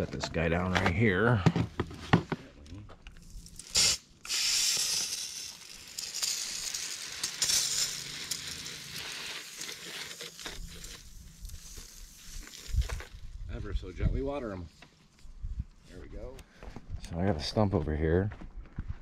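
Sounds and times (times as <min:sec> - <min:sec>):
garden hose spraying water: 0:03.2 - 0:13.4.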